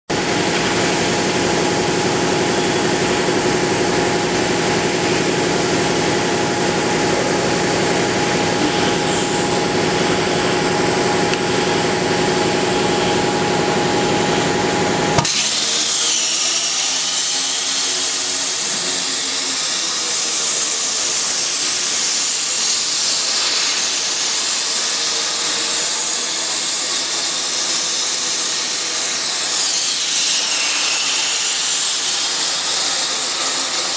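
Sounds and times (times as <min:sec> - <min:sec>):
machine humming and whining: 0:00.1 - 0:33.9
plasma torch hissing: 0:04.2 - 0:13.1, 0:15.2 - 0:24.9.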